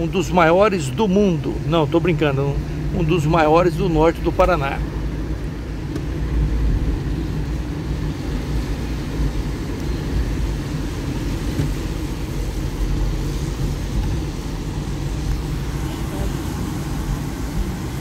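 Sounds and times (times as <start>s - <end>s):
car interior engine rumble: 0.0s - 18.0s
tyres on wet pavement: 0.0s - 18.0s.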